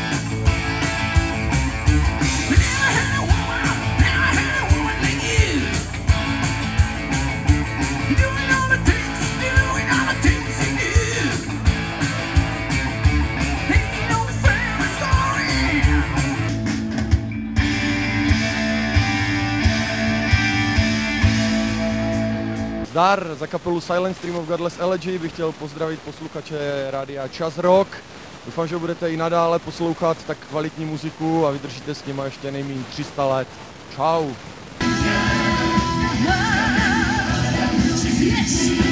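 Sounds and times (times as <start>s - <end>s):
drum beat: 0.0s - 21.6s
electric guitar: 0.0s - 22.9s, 34.8s - 38.9s
person singing: 2.4s - 5.8s, 8.0s - 11.5s, 13.6s - 16.4s, 34.8s - 38.9s.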